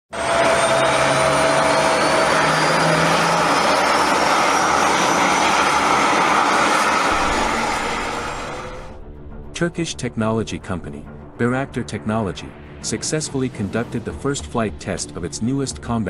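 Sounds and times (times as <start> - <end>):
high whine rising in pitch: 0.1 - 9.0
jet engine roaring: 0.1 - 9.0.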